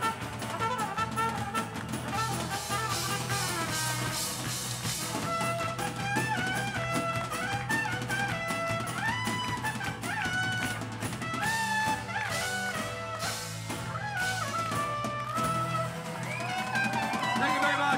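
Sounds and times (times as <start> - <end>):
drums: 0.0 - 17.9
sliding lead melody: 0.0 - 17.9
strummed acoustic guitars: 0.0 - 17.9
trumpet: 0.0 - 17.9.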